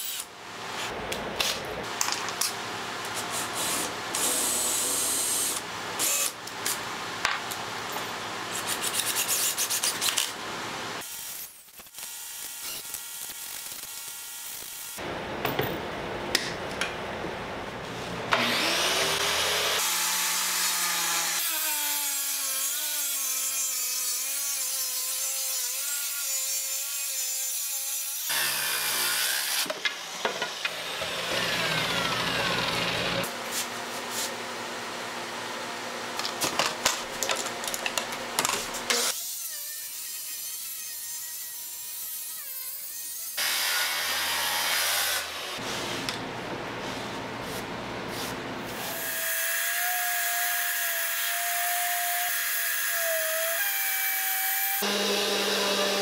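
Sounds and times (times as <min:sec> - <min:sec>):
circular saw cutting a board: 0:18.3 - 0:33.4, 0:38.9 - 0:45.6, 0:48.7 - 0:56.0
electric hand planer shaving wood: 0:18.4 - 0:21.6, 0:28.3 - 0:33.3, 0:53.0 - 0:56.0.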